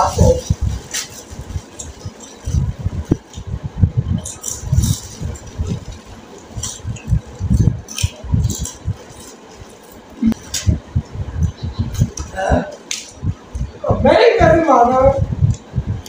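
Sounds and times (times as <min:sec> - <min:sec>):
plastic packets crinkling: 0:00.0 - 0:03.4, 0:04.2 - 0:10.7
low thumps and bumps: 0:00.0 - 0:09.2, 0:10.2 - 0:12.4, 0:13.1 - 0:16.0.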